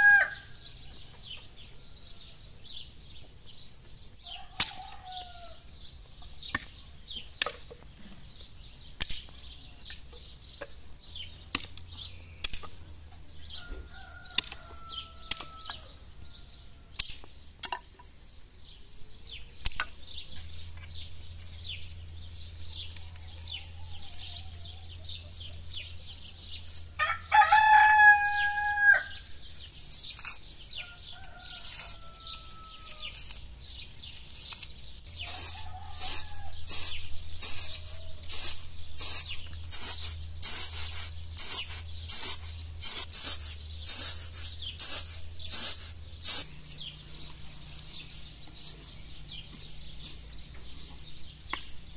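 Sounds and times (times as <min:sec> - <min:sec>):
rooster crowing: 0:00.0 - 0:01.0, 0:04.2 - 0:05.6, 0:13.6 - 0:16.5, 0:26.9 - 0:29.3, 0:30.8 - 0:33.2, 0:35.5 - 0:36.7
small birds chirping: 0:00.0 - 0:51.9
blade chopping firewood: 0:09.0 - 0:09.4, 0:11.4 - 0:12.8.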